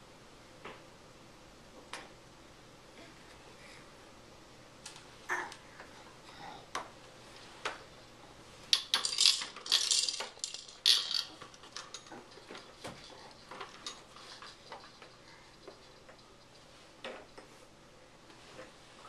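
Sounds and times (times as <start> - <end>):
plastic toys clacking and rattling: 8.7 - 17.5.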